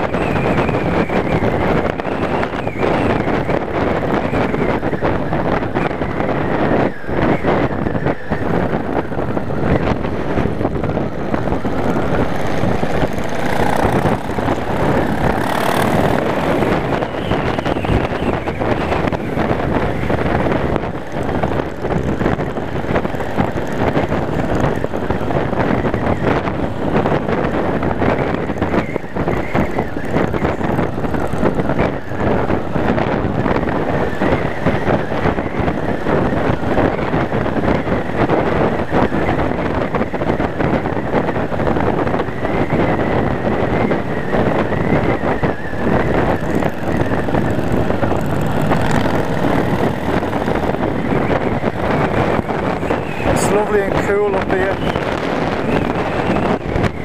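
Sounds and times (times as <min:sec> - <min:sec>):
wind rushing over microphone: 0:00.0 - 0:57.0
motorcycle engine running: 0:07.9 - 0:37.1, 0:43.4 - 0:57.0.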